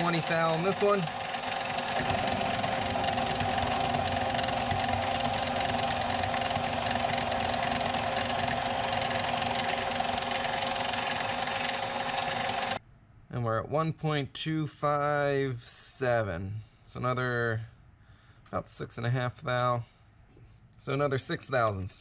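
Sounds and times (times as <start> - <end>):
lathe motor humming: 0.0 - 12.8.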